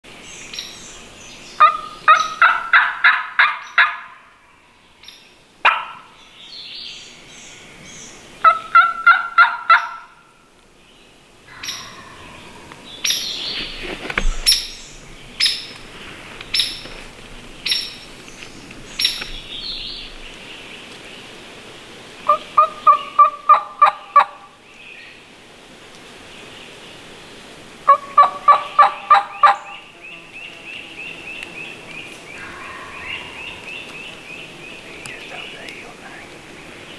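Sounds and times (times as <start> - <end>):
turkey yelping: 1.6 - 4.2, 8.4 - 10.1, 11.5 - 12.6, 22.3 - 24.5, 27.9 - 29.7
sharp high chirps: 32.4 - 34.6.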